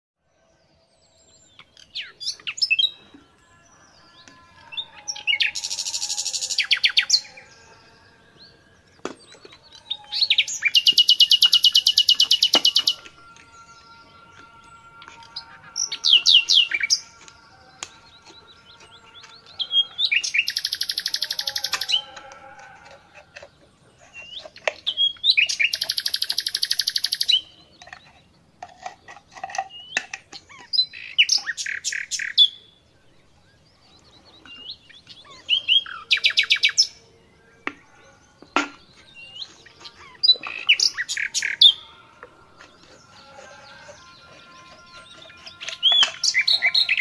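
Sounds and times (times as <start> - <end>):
songbird chirps and trills: 0.2 - 47.0.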